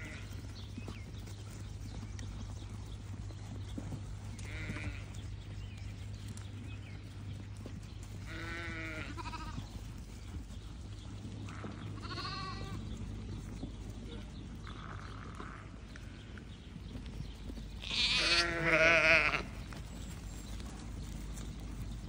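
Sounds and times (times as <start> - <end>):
sheep bleating: 4.4 - 5.1, 8.3 - 9.7, 11.5 - 12.8, 17.8 - 19.6.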